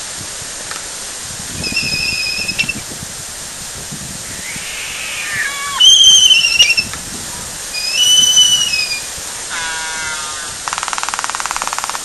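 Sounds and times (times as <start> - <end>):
albatross whistling calls: 1.6 - 2.8, 4.3 - 7.0, 7.7 - 10.5
softer falling whistles: 1.6 - 2.8, 4.3 - 6.9, 7.8 - 9.1
low rough bird call: 4.3 - 6.9, 7.7 - 11.2.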